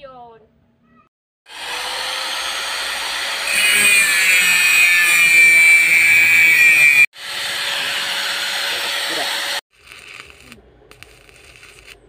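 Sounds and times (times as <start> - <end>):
angle grinder motor whine: 1.5 - 10.6
grinder disc screeching on metal: 3.3 - 12.0.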